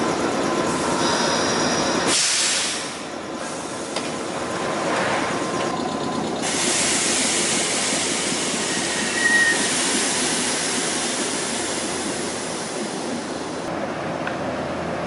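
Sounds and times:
electric train equipment hissing: 0.2s - 4.3s, 6.4s - 13.7s
short high squeal: 8.6s - 9.8s.

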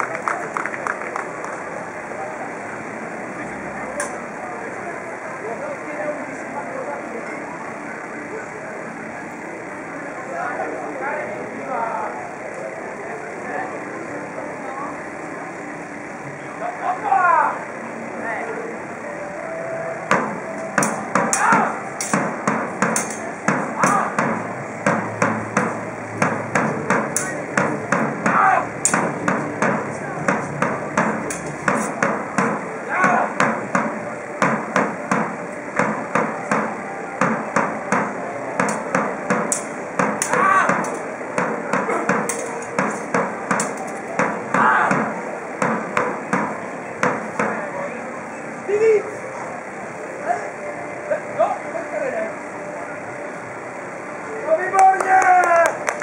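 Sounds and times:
swords clashing: 20.1s - 47.6s.

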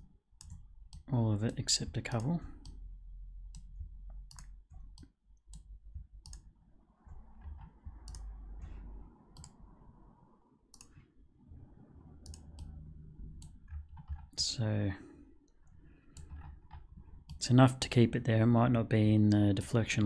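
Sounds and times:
low steady hum: 0.0s - 20.0s
computer mouse clicks: 0.4s - 2.8s, 3.5s - 9.7s, 10.7s - 11.1s, 12.2s - 12.8s, 15.4s - 17.4s.

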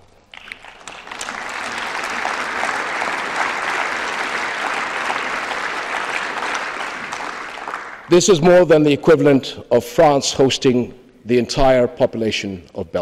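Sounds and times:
audience applauding: 0.3s - 8.4s.

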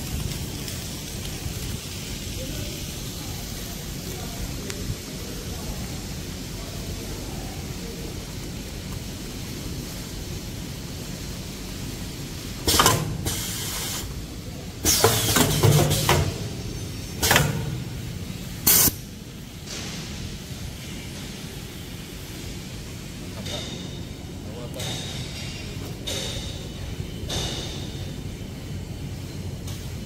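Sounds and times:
pneumatic air hisses: 12.5s - 14.2s, 14.8s - 22.7s.

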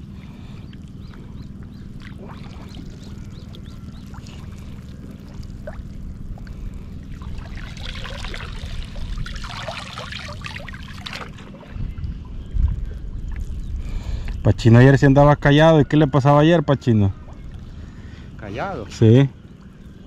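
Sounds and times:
steady low rumble: 0.0s - 20.0s
water splashing and trickling: 0.7s - 14.5s.

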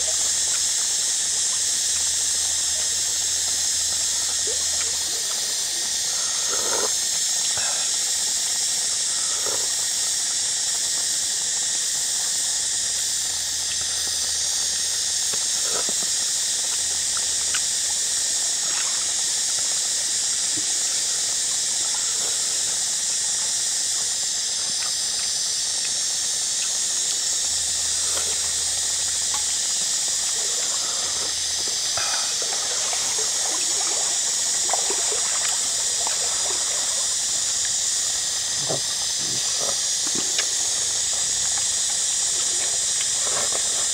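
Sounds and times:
high-pitched background hiss: 0.0s - 43.9s
soup sipping and slurping: 3.4s - 10.8s, 15.3s - 16.2s, 27.6s - 43.9s.

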